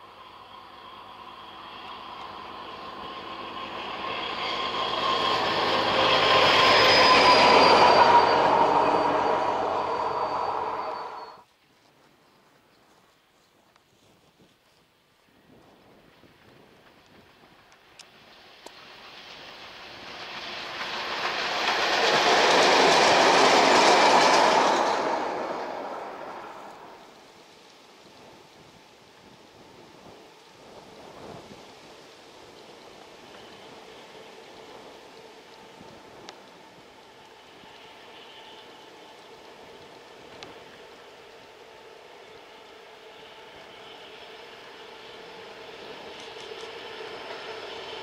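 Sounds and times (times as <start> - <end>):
diesel locomotive passing: 0.0 - 11.5, 16.1 - 48.0
steady high whine: 0.0 - 11.5, 17.6 - 27.4.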